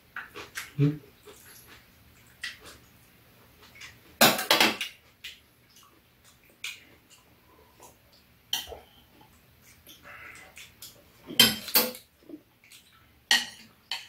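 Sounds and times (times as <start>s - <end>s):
metal utensils clinking on bowls: 11.3s - 12.1s, 13.3s - 14.0s.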